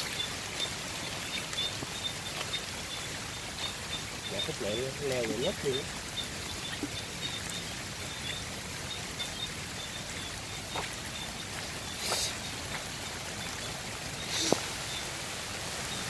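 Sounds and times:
steady rain falling: 0.0s - 16.0s
water running: 0.0s - 16.0s.

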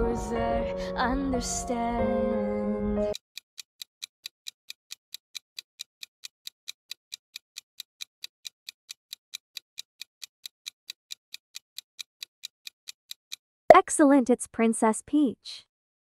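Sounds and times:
clock ticking: 3.1s - 13.8s.

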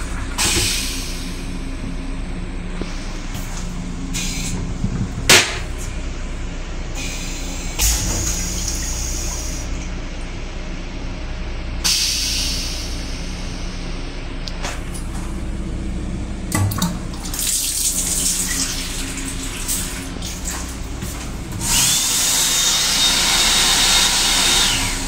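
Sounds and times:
toilet flush click: 0.0s - 1.2s, 16.5s - 22.1s
moving train hum: 0.0s - 25.0s.

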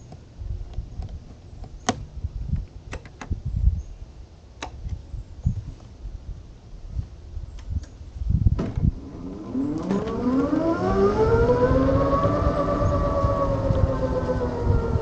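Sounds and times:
electric motorcycle whining: 8.8s - 15.0s.

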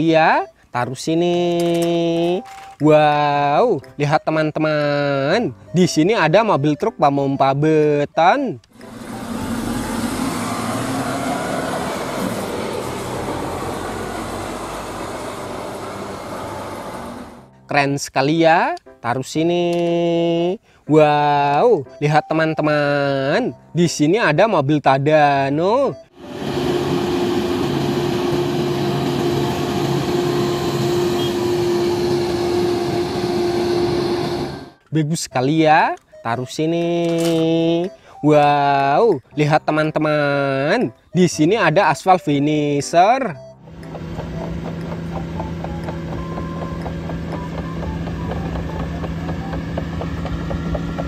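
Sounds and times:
crane diesel engine droning: 8.7s - 17.5s, 26.0s - 34.8s, 43.4s - 51.0s.

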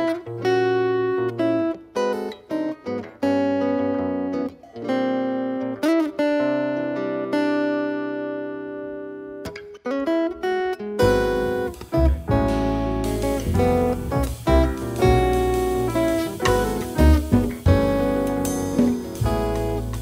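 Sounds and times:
acoustic guitar jazz chords: 0.0s - 20.0s
deep bass notes: 11.0s - 20.0s
cymbal hiss: 11.2s - 20.0s.

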